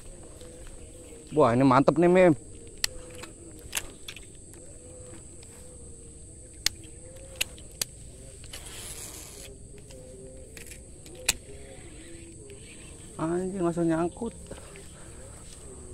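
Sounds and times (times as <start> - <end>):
high insect drone: 0.0 - 15.9
fishing reel clicks: 2.7 - 4.4, 6.6 - 13.0.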